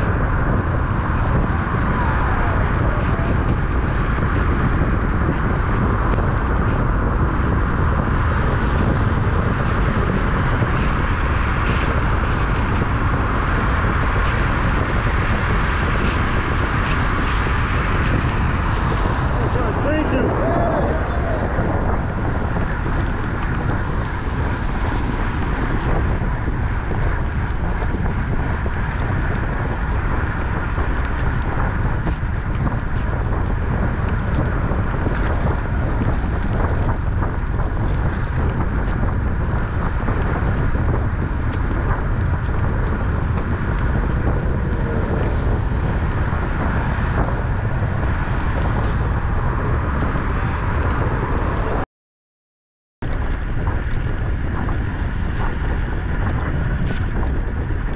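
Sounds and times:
tyre noise on wet pavement: 0.0s - 51.8s, 53.0s - 57.9s
wind rush over microphone: 0.0s - 51.9s, 53.0s - 57.9s.

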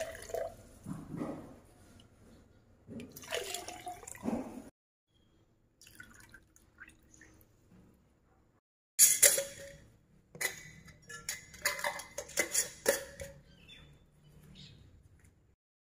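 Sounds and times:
metal lids clinking on glass jars: 9.0s - 13.7s.

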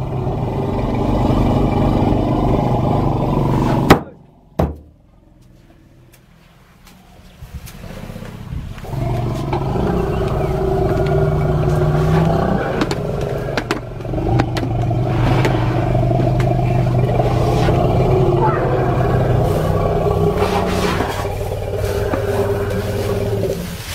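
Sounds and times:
jeep engine revving: 0.0s - 4.0s, 7.8s - 23.9s
knocks and clatter: 11.0s - 16.7s.

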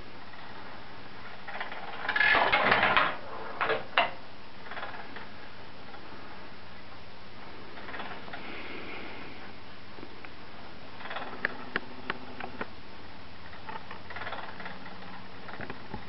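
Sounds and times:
mechanism rattling: 1.3s - 6.0s, 7.7s - 8.4s, 11.0s - 12.7s, 13.5s - 16.0s.

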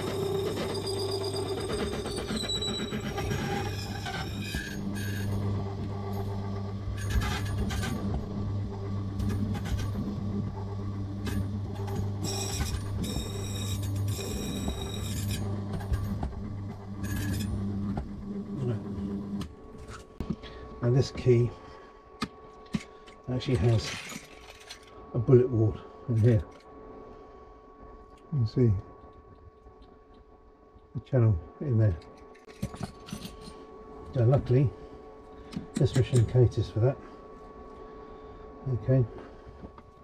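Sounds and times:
key machine humming: 0.0s - 19.7s.

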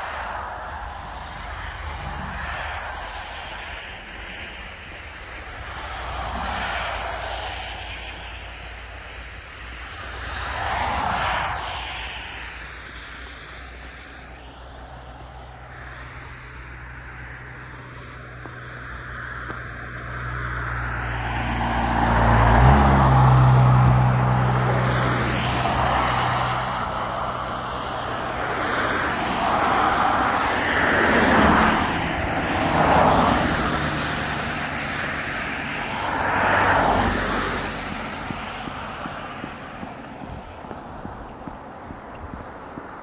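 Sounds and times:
cars passing on wet road: 0.0s - 43.0s
vehicle engine humming: 12.6s - 43.0s.

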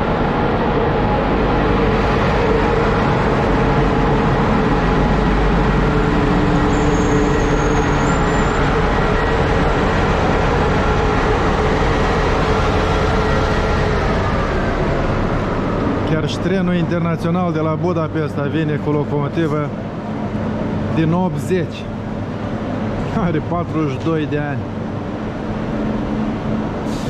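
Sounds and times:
electric locomotive humming: 0.0s - 27.0s.

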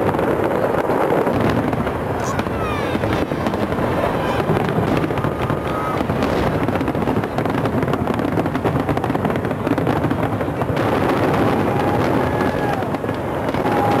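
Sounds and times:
firework whistles: 0.0s - 8.0s, 10.9s - 14.0s
fireworks bursts and crackling: 0.0s - 14.0s.

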